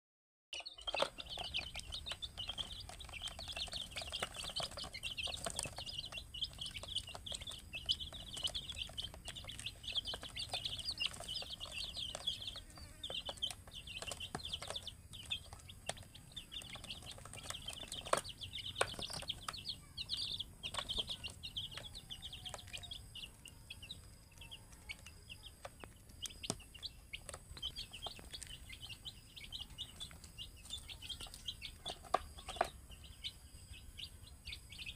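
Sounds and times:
chicks peeping: 0.5 - 34.9.

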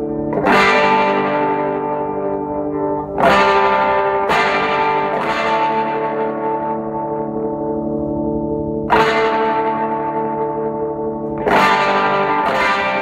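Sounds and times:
distorted electric guitar chords: 0.0 - 13.0.

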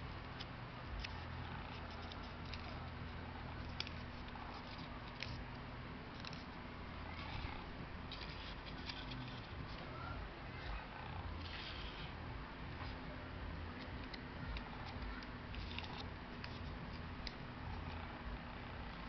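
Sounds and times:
steady low hum: 0.0 - 19.0
paper rustling and clicking: 0.4 - 2.8, 3.6 - 5.4, 7.1 - 9.9, 14.0 - 17.4.

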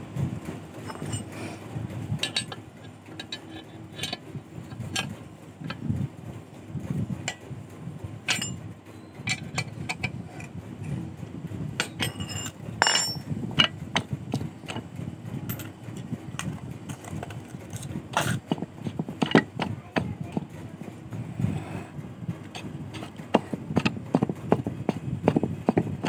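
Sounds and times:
steady low rumble: 0.0 - 26.0
metal parts clicking and clinking: 0.8 - 1.6, 2.2 - 5.1, 8.3 - 8.6, 9.2 - 10.6, 11.8 - 14.1, 15.5 - 15.8.

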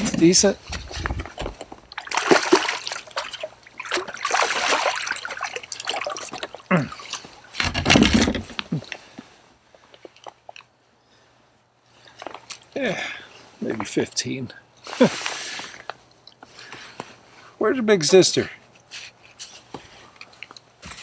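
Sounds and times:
fish splashing at surface: 1.9 - 6.7.

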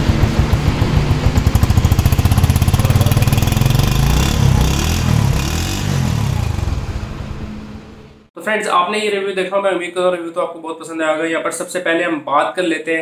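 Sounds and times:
motorcycle engine revving: 0.0 - 8.3.

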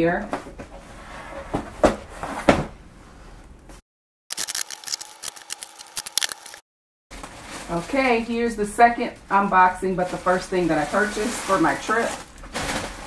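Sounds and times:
scissors slitting packing tape: 4.3 - 6.6.

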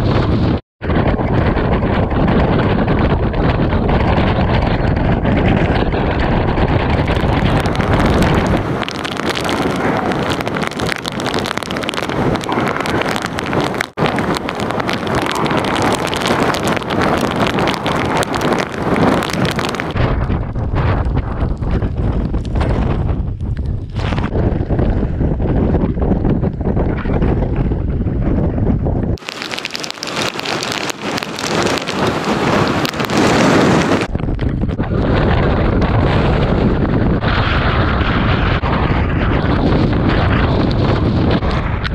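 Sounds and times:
deep rumble: 0.0 - 41.9
wind buffeting microphone: 0.0 - 41.9
heavy surf breaking: 1.0 - 20.2, 29.2 - 34.2.

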